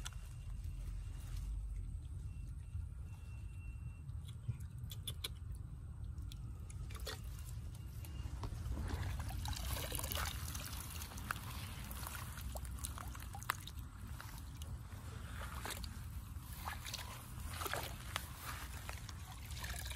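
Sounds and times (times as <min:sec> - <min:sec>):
water trickling and splashing: 0:06.0 - 0:19.9
person wading through water: 0:06.8 - 0:19.9.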